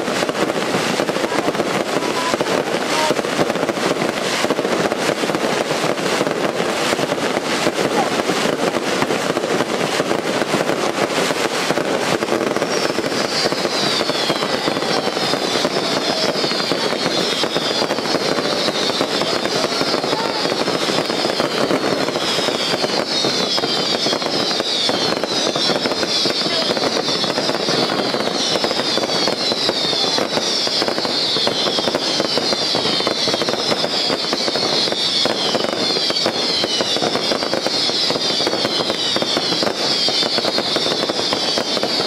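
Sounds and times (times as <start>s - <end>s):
fireworks crackles and bangs: 0.0s - 42.0s
fireworks whistles falling pitch: 0.0s - 42.0s.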